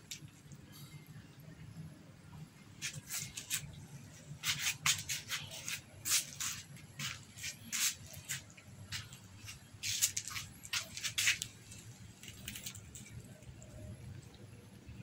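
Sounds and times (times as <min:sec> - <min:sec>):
low steady hum: 0:00.0 - 0:15.0
cats crunching dry kibble: 0:04.4 - 0:14.4.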